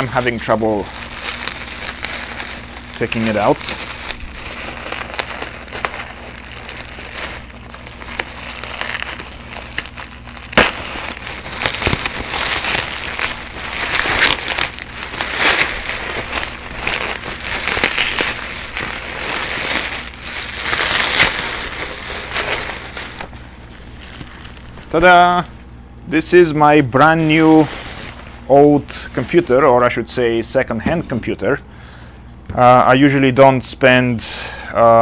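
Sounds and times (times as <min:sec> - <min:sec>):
bubble wrap crinkling: 0:00.0 - 0:31.4.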